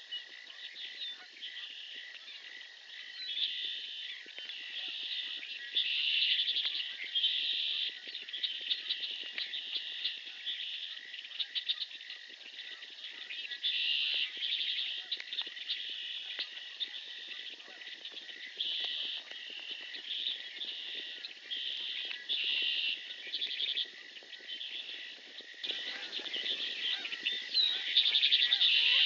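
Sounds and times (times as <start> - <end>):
trilling animal calls: 12.6 - 29.0.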